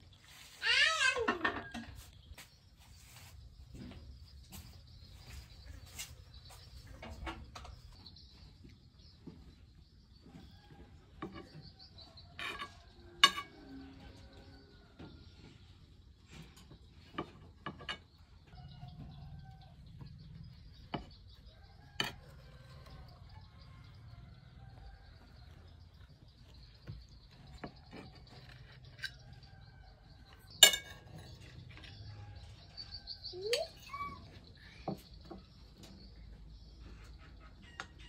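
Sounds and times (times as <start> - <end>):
faint bird chirps: 31.9 - 38.0.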